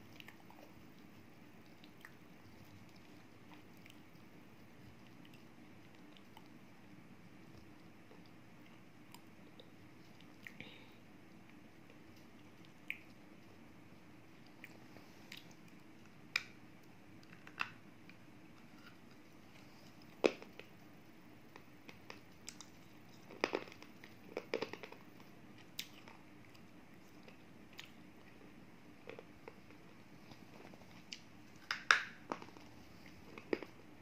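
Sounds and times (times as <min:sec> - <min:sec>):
faint steady hum: 0:00.0 - 0:34.0
crunching between teeth: 0:21.6 - 0:33.8.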